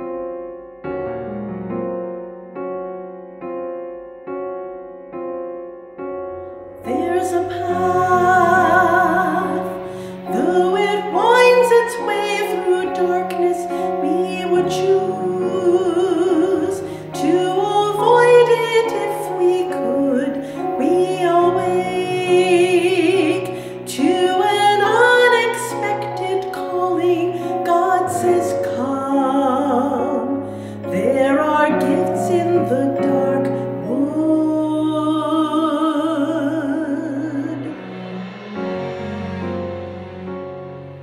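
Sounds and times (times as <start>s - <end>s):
piano accompaniment: 0.0s - 41.0s
woman singing operatic hymn: 6.8s - 37.7s.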